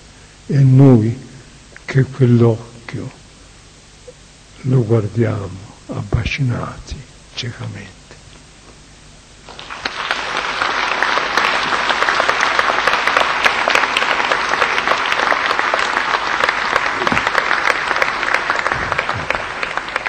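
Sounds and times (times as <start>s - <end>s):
audience applauding: 9.4s - 20.0s.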